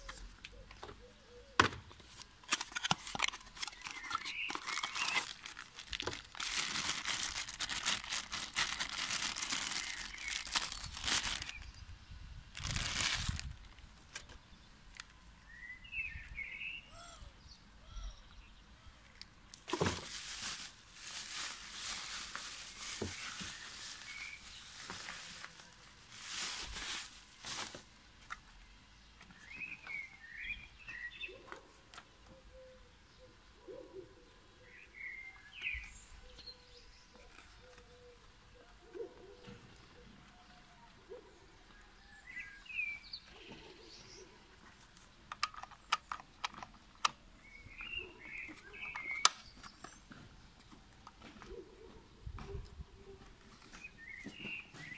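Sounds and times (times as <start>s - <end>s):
birds chirping: 0.0s - 13.1s, 14.1s - 19.6s, 28.2s - 54.9s
bubble wrap rustling and crinkling: 2.2s - 11.8s, 12.5s - 15.1s, 19.6s - 28.0s.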